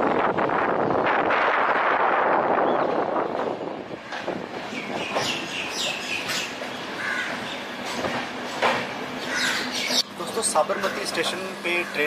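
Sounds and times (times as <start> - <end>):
train coaches rolling: 0.0 - 12.0
wheels clacking over rail joints: 3.9 - 11.8.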